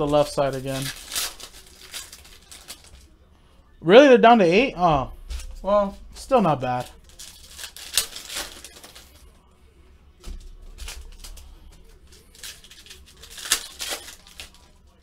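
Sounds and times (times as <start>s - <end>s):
plastic wrapper crinkling: 0.0s - 3.2s, 6.3s - 9.2s, 10.3s - 15.0s.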